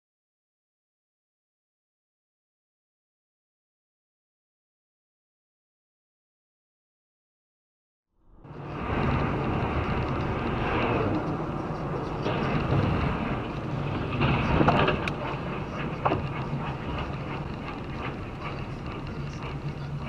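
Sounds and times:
low hum: 8.2 - 20.0
car road and engine noise: 8.3 - 20.0.

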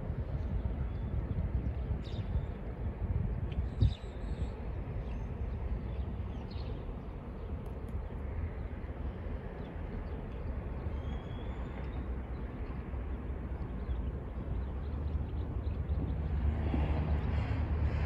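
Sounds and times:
wind buffeting microphone: 0.0 - 8.7.

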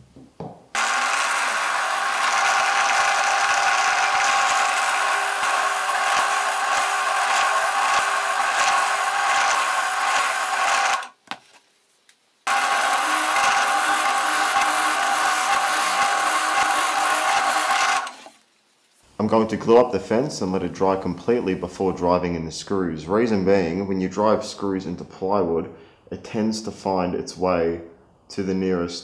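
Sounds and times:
drill bit rasping through wood: 0.8 - 11.1, 12.5 - 18.4
drill press motor hum: 0.8 - 11.1, 12.5 - 18.4.

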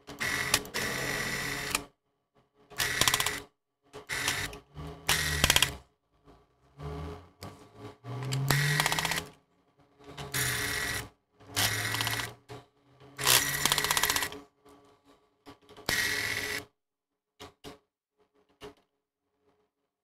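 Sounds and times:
electric screwdriver whining: 2.8 - 3.4, 4.1 - 4.5, 5.1 - 5.7, 8.3 - 9.3, 11.6 - 12.3, 13.2 - 14.3.

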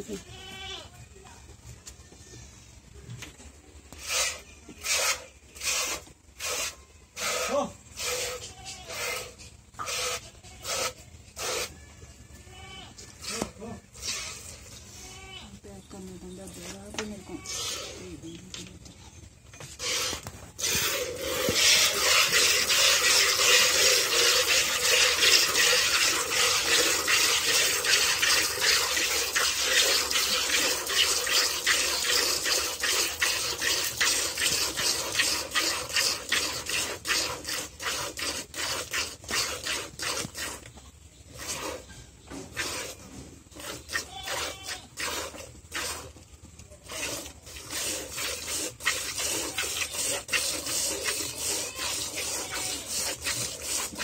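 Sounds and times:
milk squirting into a bucket: 19.8 - 40.7, 46.8 - 54.0.

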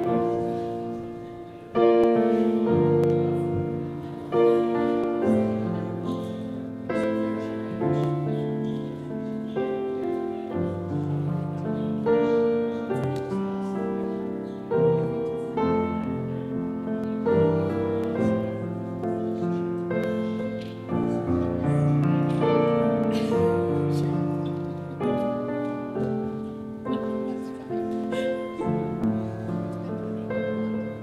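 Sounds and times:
slow piano music: 0.0 - 31.0.

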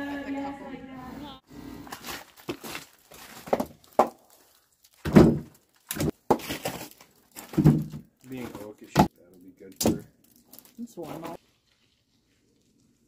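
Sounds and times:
firewood logs knocking together: 2.0 - 11.3.

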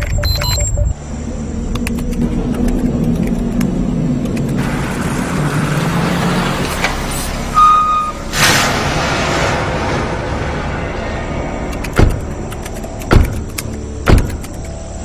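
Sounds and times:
vehicle engines running: 0.0 - 15.0
rushing noise: 1.0 - 13.0
short high beep: 7.6 - 8.2.

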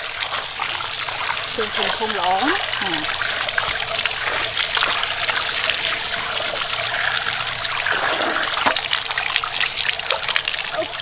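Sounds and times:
tap water splashing into metal basin: 0.0 - 10.6
hands scrubbing meat: 0.1 - 7.2.

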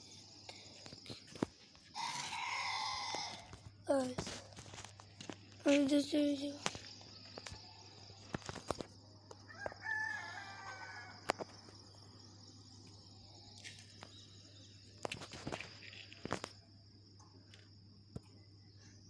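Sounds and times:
rooster crowing: 1.9 - 3.6, 9.5 - 11.4.

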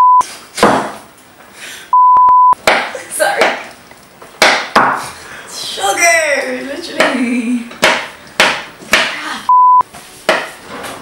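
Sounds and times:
censor bleep tone: 0.0 - 0.2, 1.9 - 2.6, 9.5 - 9.8
person talking: 5.6 - 7.7.

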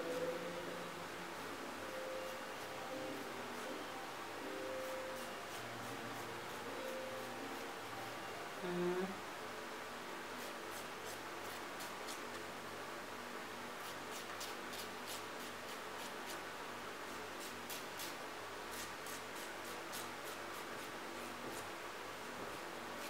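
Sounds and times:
low room hum: 0.0 - 23.0
nail file rasping on fingernails: 13.8 - 16.4, 17.4 - 20.9.

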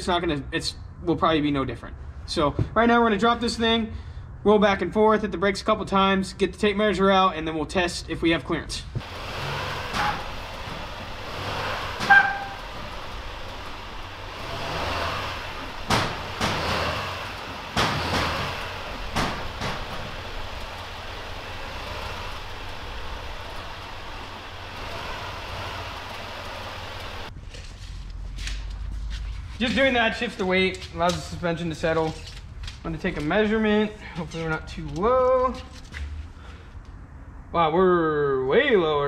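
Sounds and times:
diesel engine rumble: 8.5 - 27.3
suspension clunks: 8.9 - 27.3
short squeak: 12.0 - 12.7.

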